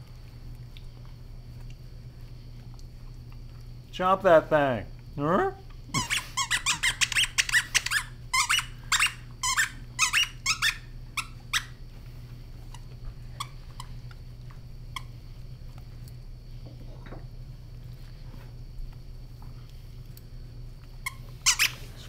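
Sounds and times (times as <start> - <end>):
squeaky toy squeaking: 6.0 - 10.8.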